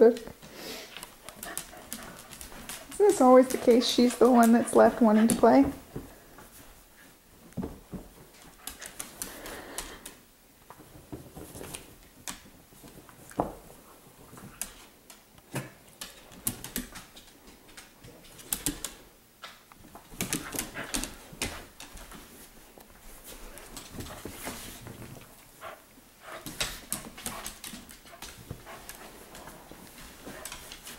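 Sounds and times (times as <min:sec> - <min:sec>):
clicking and scuffling on dog bed: 0:00.9 - 0:30.9.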